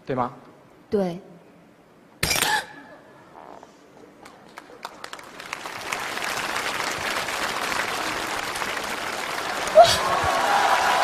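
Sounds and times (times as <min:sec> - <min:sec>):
audience applause: 0:04.2 - 0:11.0.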